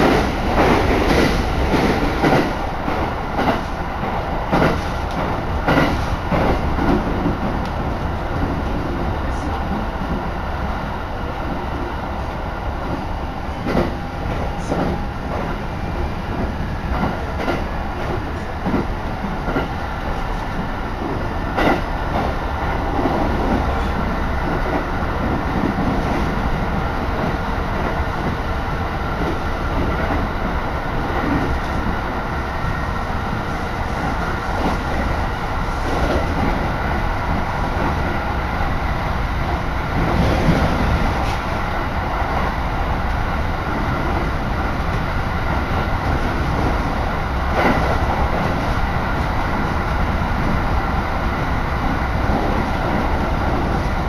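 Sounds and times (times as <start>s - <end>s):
train cabin rumble: 0.0s - 54.0s.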